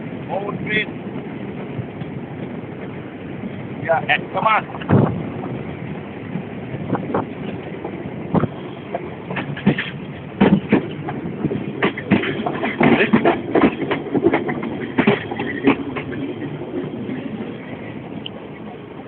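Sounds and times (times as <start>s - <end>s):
train rumble inside carriage: 0.0s - 19.0s
wheels clattering over rail joints: 6.3s - 18.2s.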